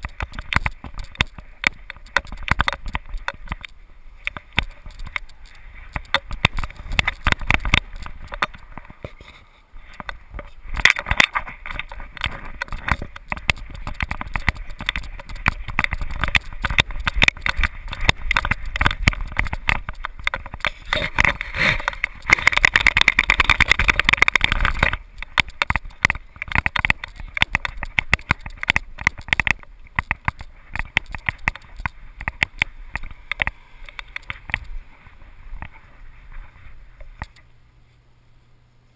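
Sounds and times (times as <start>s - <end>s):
camera mount clicking and rattling: 10.0s - 34.7s.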